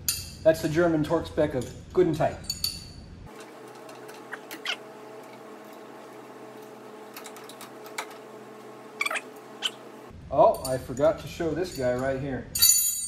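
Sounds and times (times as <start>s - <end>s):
steady hum: 3.2s - 10.2s.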